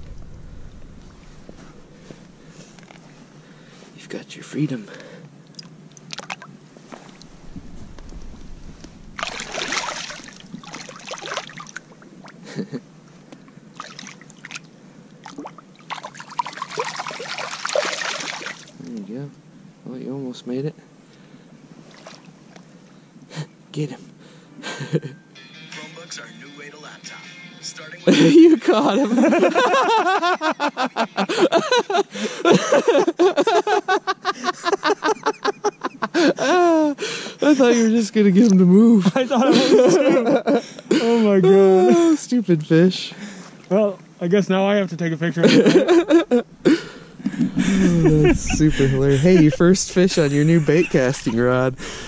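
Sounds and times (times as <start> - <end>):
fish splashing in shallow water: 6.0 - 6.5, 9.2 - 12.5, 13.8 - 14.6, 15.2 - 18.8
men laughing: 12.4 - 12.9, 24.6 - 25.2, 28.1 - 38.1, 38.9 - 42.3, 45.3 - 52.0.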